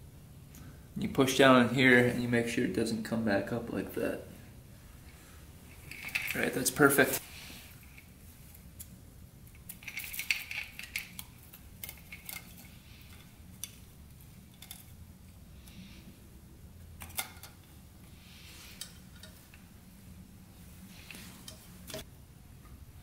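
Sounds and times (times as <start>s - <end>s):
light metallic clinks and rattles: 5.7s - 6.6s, 8.7s - 15.4s, 17.0s - 19.7s, 20.9s - 22.0s
soft handling rustles: 17.0s - 22.1s.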